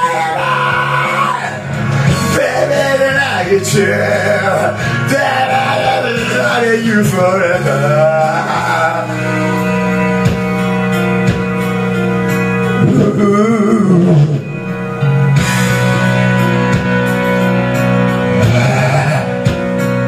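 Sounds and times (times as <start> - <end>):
rock backing track over speakers: 0.0 - 20.0
wavering falling vocal: 12.8 - 14.8, 18.3 - 19.5.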